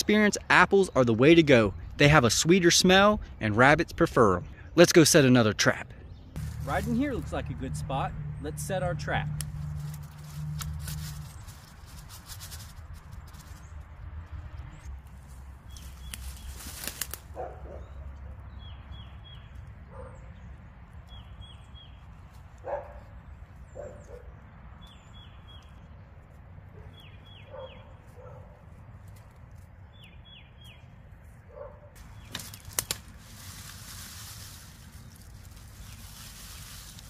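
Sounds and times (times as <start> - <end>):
rustling in leaves: 6.4 - 7.6, 9.4 - 13.8, 15.0 - 17.9, 32.0 - 37.0.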